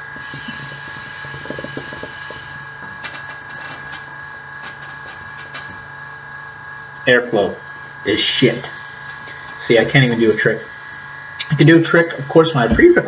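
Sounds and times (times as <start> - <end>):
hookah water bubbling: 0.0 - 7.0.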